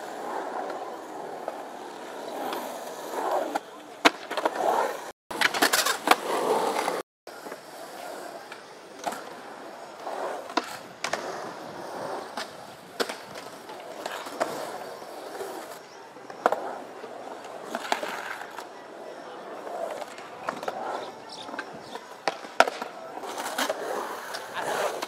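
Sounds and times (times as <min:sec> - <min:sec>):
skateboard wheels rolling on concrete: 0:00.0 - 0:25.0
skateboard clacking on coping: 0:19.6 - 0:25.0.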